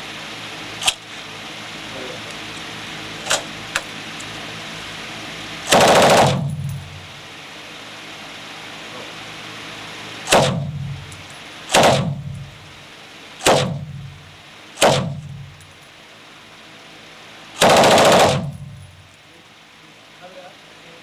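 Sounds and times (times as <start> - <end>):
machine gun bursts with echo: 5.7 - 6.9, 10.3 - 11.1, 11.7 - 12.6, 13.4 - 14.2, 14.8 - 15.5, 17.6 - 18.9.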